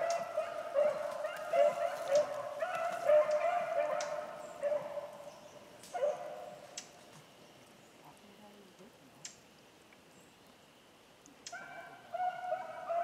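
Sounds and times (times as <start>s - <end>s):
dogs baying: 0.0s - 5.3s, 5.9s - 6.6s, 11.5s - 13.0s.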